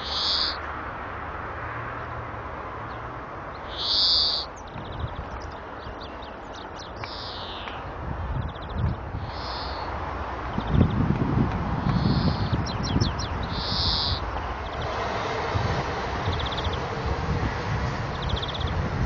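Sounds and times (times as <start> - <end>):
finch singing: 0.0 - 0.6, 2.9 - 11.2, 11.8 - 15.0, 16.2 - 17.0, 18.0 - 19.0.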